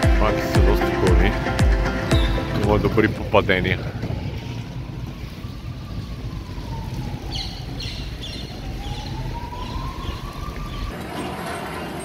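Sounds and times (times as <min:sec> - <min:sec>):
steady low rumble: 0:00.0 - 0:08.6
emergency siren wailing: 0:00.0 - 0:12.0.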